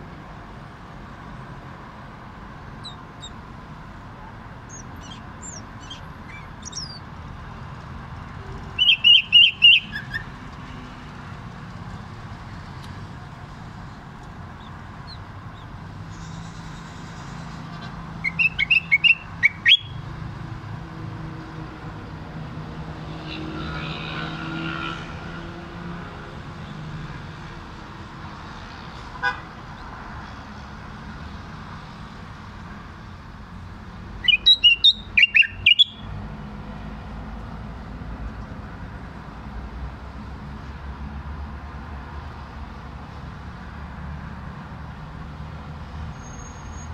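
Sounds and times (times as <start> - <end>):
street traffic hum: 0.0 - 46.9
bird whistling quick notes: 4.7 - 7.0, 8.8 - 10.2, 18.2 - 19.9, 34.2 - 36.1.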